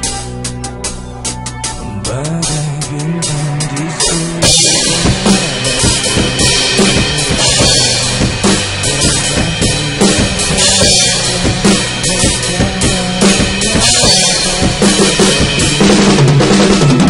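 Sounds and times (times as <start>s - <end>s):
backing music with bass line: 0.0s - 17.0s
drum kit played hard: 0.0s - 17.0s
crash and ride cymbals: 4.1s - 17.0s.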